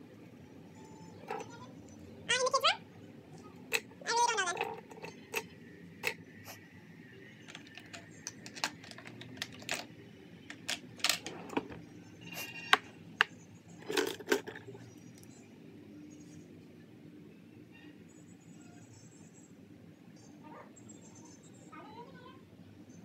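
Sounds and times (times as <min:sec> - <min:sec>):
makeup items clicking on a surface: 0:07.4 - 0:11.8.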